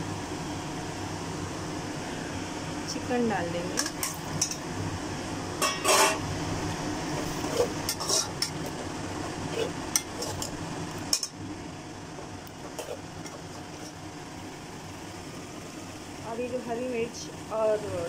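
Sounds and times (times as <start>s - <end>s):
metal spoon scraping pot: 5.6s - 6.2s, 7.2s - 8.8s, 9.5s - 11.3s, 12.6s - 14.0s
food sizzling in pot: 5.6s - 15.2s.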